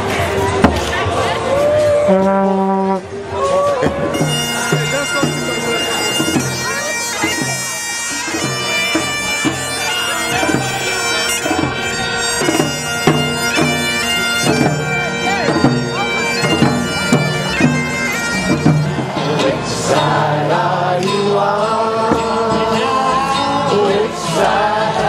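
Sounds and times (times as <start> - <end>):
bagpipes playing a tune: 3.9 - 19.5.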